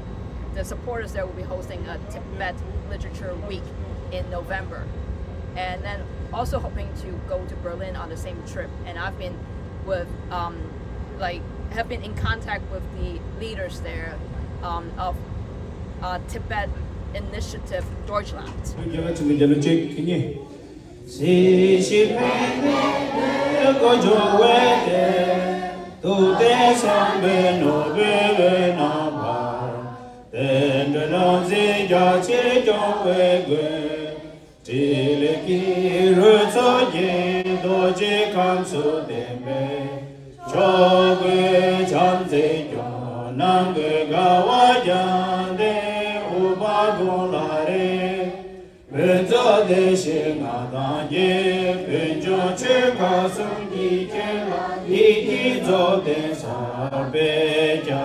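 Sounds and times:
group chanting in unison: 20.4 - 58.0.

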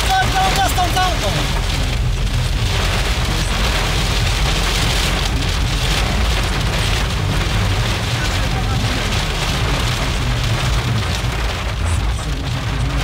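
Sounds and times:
heavy rain on car roof: 0.0 - 13.0
low rumble: 0.0 - 13.0.

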